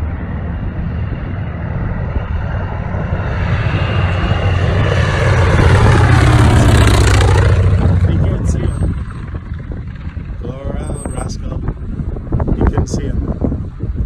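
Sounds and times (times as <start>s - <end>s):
propeller plane flying low: 0.0s - 14.0s.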